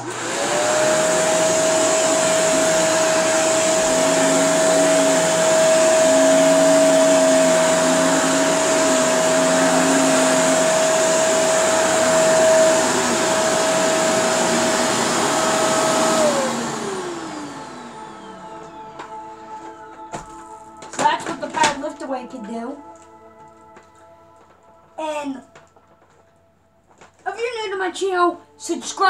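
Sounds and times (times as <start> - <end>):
vacuum motor spinning down: 0.0 - 20.4
vacuum cleaner running: 0.0 - 22.4.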